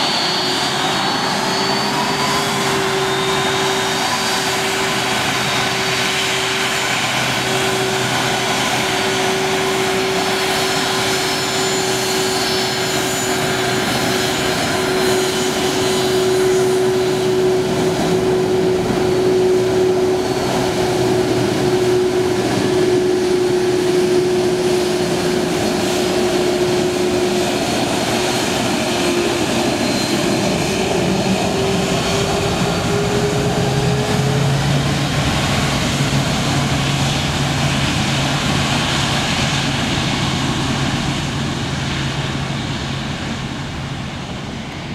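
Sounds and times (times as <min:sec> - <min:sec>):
jet engines whining: 0:00.0 - 0:44.9.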